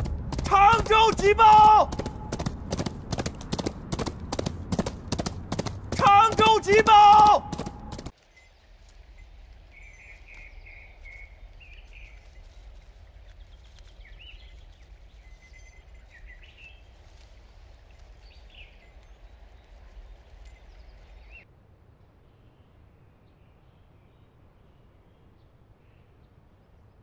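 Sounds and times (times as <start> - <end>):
faint low rumble: 0.0 - 0.9
small birds chirping: 0.0 - 21.4.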